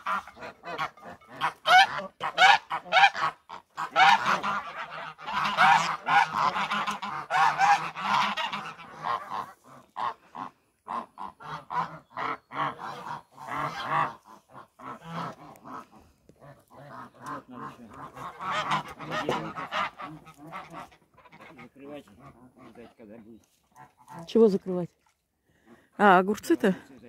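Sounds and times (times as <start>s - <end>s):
geese honking: 0.0s - 24.6s.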